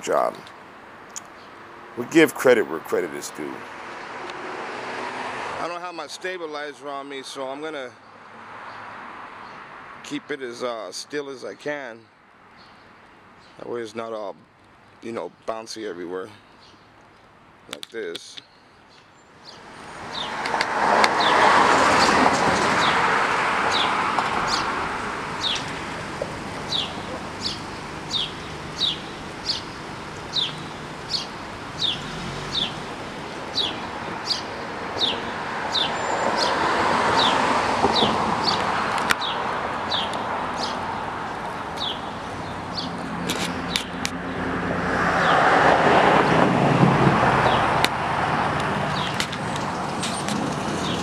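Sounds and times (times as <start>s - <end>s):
traffic noise: 0.0s - 51.0s
car passing by: 3.0s - 5.8s, 19.7s - 29.6s, 30.3s - 51.0s.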